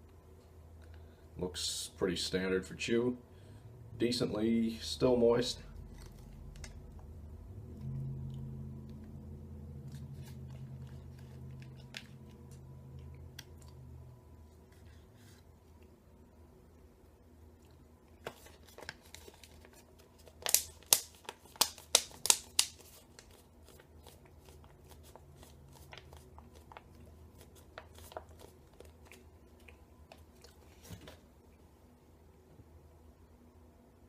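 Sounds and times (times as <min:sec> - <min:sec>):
foil pouch crinkling and rustling: 0:18.2 - 0:31.2.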